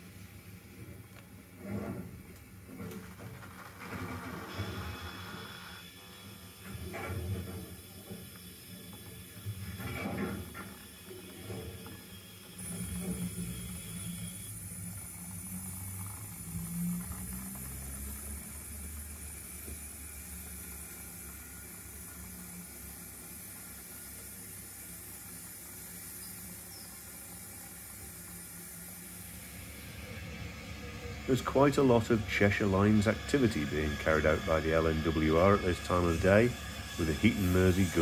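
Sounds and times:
model locomotive rumble with hiss: 0:00.0 - 0:38.0.

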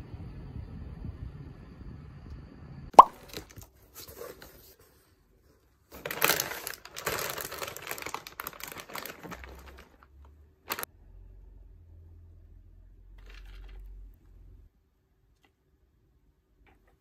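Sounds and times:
items rustling in cardboard box: 0:03.2 - 0:10.9
plastic packaging crinkling: 0:05.9 - 0:10.9.

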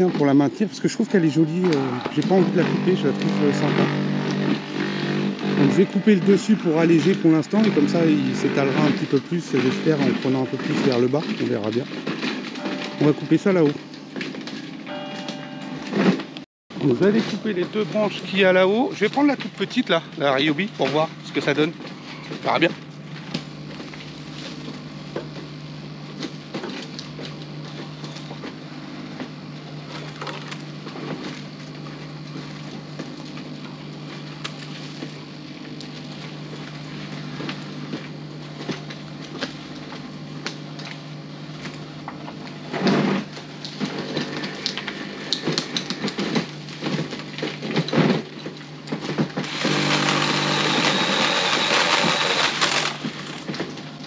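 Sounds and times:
saw humming: 0:00.9 - 0:11.4, 0:49.4 - 0:53.0
saw cutting branches: 0:01.2 - 0:11.6, 0:49.4 - 0:53.4.

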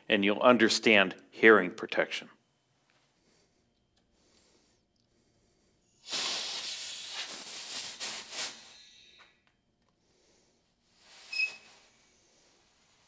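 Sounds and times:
compressed air hissing: 0:05.8 - 0:09.2, 0:10.9 - 0:13.0.

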